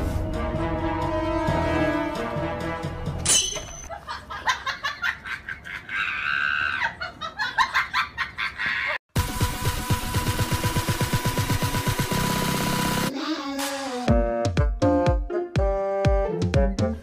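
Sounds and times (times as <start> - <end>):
background music: 0.0 - 3.6, 13.7 - 17.0
person laughing: 3.9 - 9.0.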